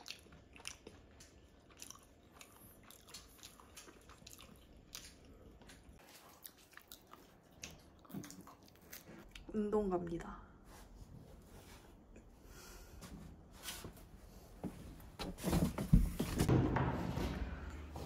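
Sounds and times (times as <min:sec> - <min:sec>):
person chewing and eating: 0:00.0 - 0:09.5.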